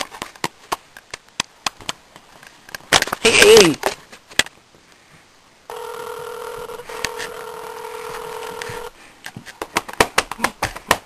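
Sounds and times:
phone ringback tone: 5.7 - 9.0.

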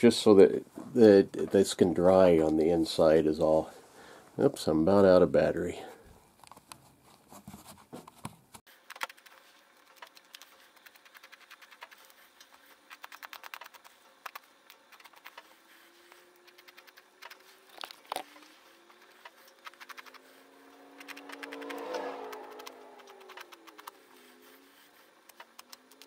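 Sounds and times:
knife blade clicking and scratching: 16.4 - 20.3.

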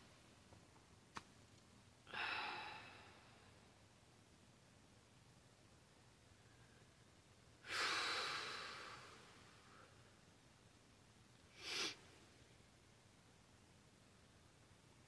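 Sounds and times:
woman sighing heavily: 2.1 - 3.2.

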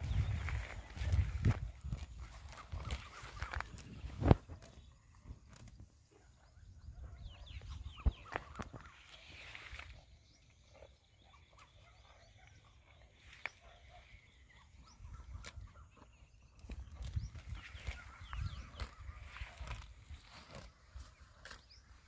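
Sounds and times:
cow chewing leafy plants: 0.0 - 5.8, 15.2 - 22.0
birds chirping: 0.0 - 22.0.

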